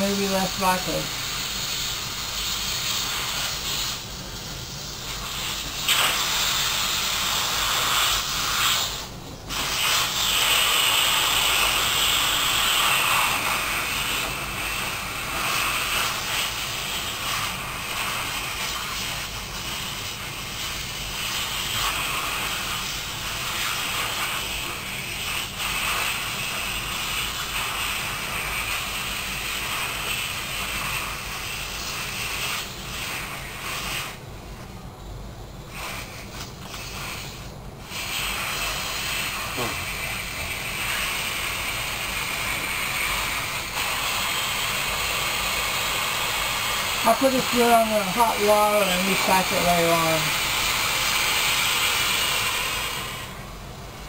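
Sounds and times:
air hissing out of balloon: 0:00.0 - 0:54.0.

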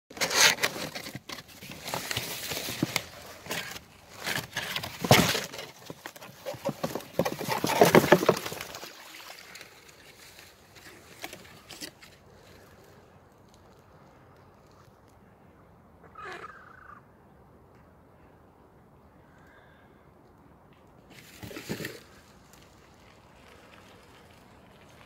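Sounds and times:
cardboard box rustling and scraping: 0:00.1 - 0:09.6, 0:10.2 - 0:12.2, 0:21.1 - 0:22.2.

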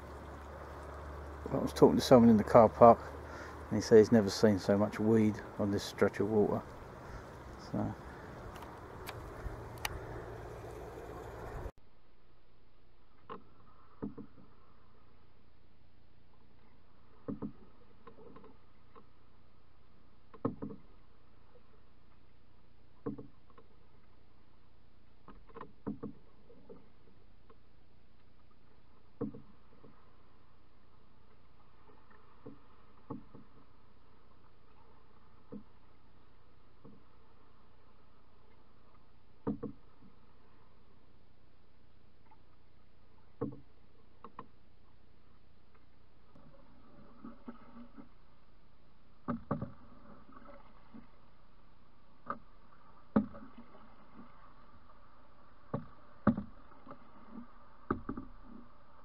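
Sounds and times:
wooden paddle knocking canoe: 0:00.0 - 0:11.7, 0:13.1 - 0:15.2, 0:16.3 - 0:59.0
paddle stroke knocks: 0:55.7 - 0:56.6.

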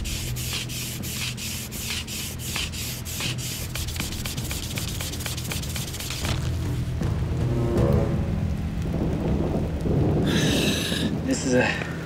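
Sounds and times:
bamboo scraping back and forth: 0:00.0 - 0:07.0.

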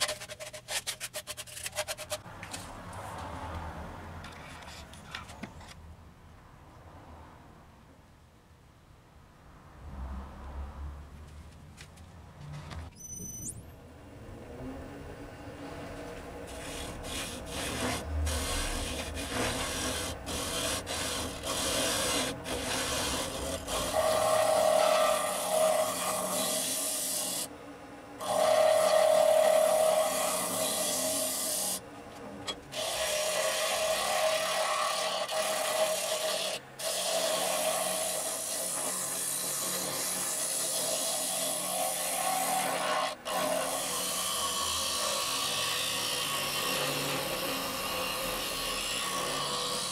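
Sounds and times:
lathe tool scraping wood: 0:00.0 - 0:02.3, 0:16.5 - 0:27.5, 0:28.2 - 0:31.8, 0:32.5 - 0:49.9.

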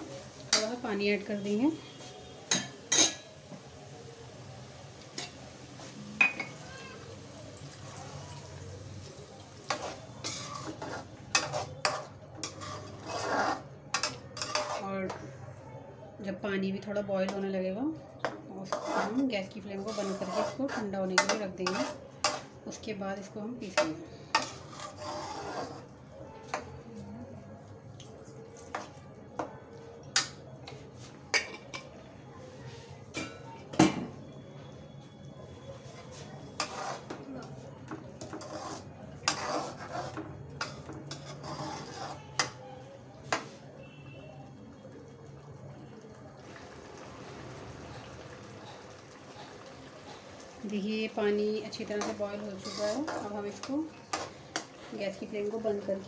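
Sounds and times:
spoon clinking against pan: 0:02.5 - 0:03.2
metal spoon scraping pan: 0:09.6 - 0:15.2, 0:18.6 - 0:22.5, 0:23.6 - 0:25.9, 0:36.1 - 0:37.6, 0:38.2 - 0:42.6, 0:51.6 - 0:55.0.

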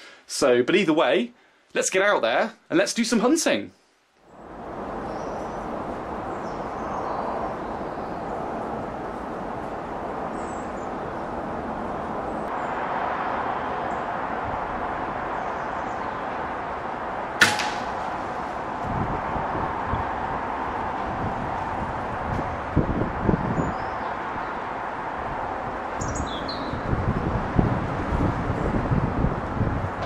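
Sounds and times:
steady outdoor hiss: 0:00.0 - 0:30.0
air rifle shot: 0:17.4 - 0:18.5.

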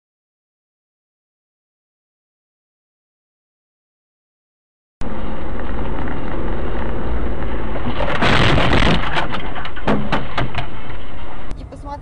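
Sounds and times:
rough burst of noise: 0:05.0 - 0:11.5
car road and engine rumble: 0:05.0 - 0:12.0.

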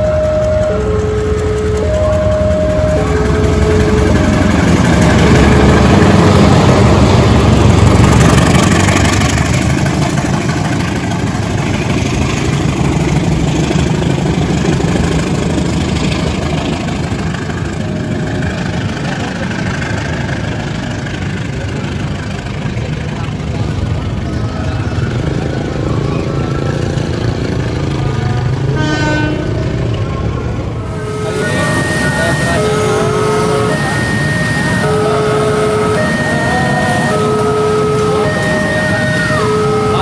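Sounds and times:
two-tone signal: 0:00.0 - 0:05.9, 0:30.9 - 0:40.0
diesel locomotive engine working hard: 0:00.0 - 0:40.0.

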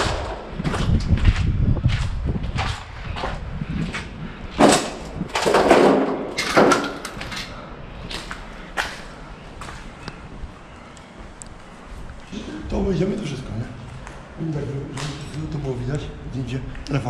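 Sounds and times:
knocks and thuds: 0:04.6 - 0:07.0.

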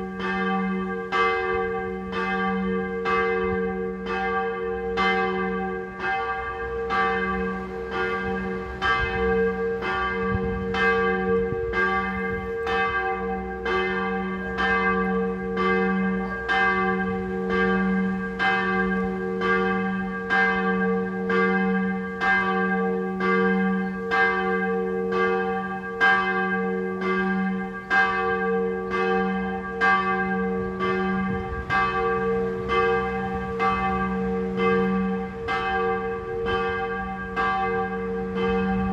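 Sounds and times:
church bell ringing: 0:00.0 - 0:38.9.

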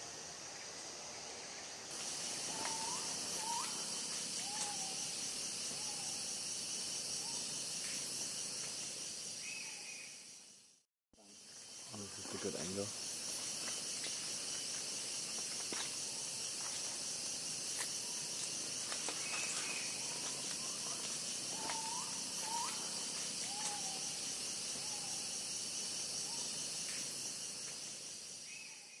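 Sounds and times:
insect chorus shrilling: 0:00.0 - 0:29.0
gliding bird calls: 0:02.4 - 0:05.0.

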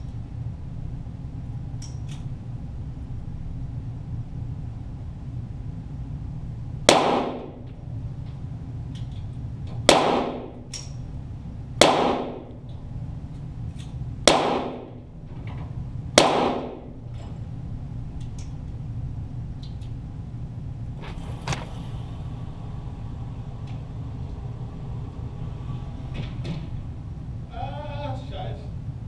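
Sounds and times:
steady low hum: 0:00.0 - 0:29.0
pistol shots: 0:06.9 - 0:07.7, 0:09.9 - 0:10.7, 0:11.8 - 0:12.6, 0:14.2 - 0:15.0, 0:16.2 - 0:17.0.

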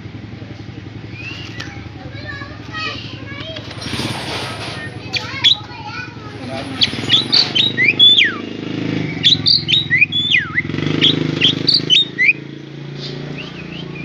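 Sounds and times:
myna whistles and chirps: 0:01.1 - 0:01.8, 0:06.8 - 0:12.4, 0:13.0 - 0:14.0.

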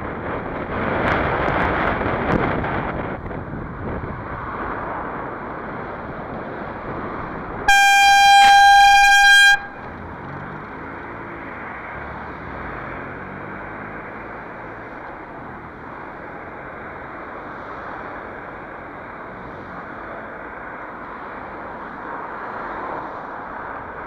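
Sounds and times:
horn blasting high note: 0:07.7 - 0:09.8.

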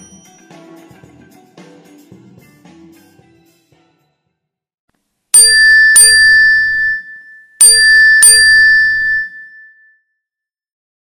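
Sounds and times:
bright bell dings: 0:05.4 - 0:10.0.

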